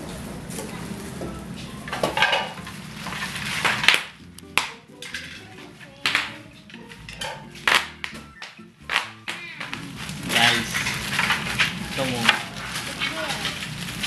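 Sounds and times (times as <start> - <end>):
plastic toy pieces clattering: 5.0 - 6.4, 8.9 - 14.0
sharp plastic knocks: 7.2 - 9.8.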